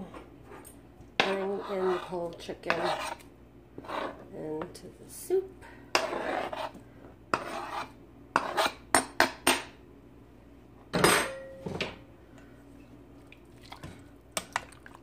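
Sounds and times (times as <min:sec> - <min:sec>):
fork scraping cutting board: 0:01.2 - 0:03.2, 0:03.8 - 0:04.3, 0:05.9 - 0:08.8
metal clank with ring: 0:11.0 - 0:11.7.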